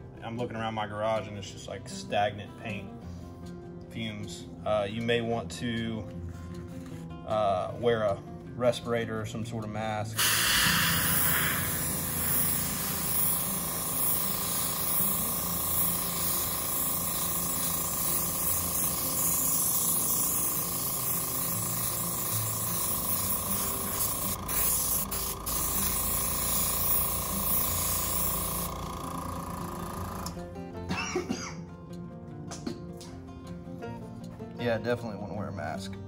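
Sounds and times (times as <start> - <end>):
airbrush spraying hiss: 10.2 - 30.4
air compressor humming: 10.2 - 31.4.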